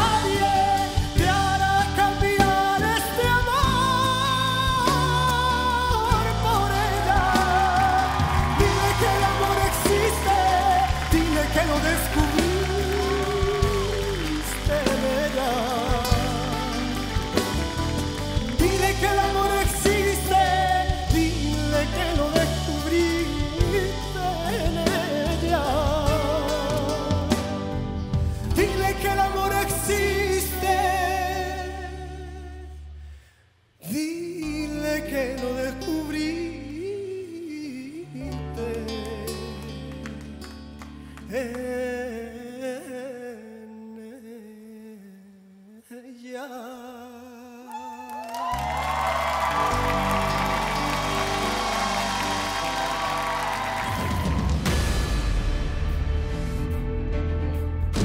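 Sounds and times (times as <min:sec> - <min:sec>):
band accompaniment: 0:00.0 - 0:32.6, 0:48.4 - 0:58.0
man singing a ballad: 0:00.0 - 0:33.1, 0:33.8 - 0:48.5.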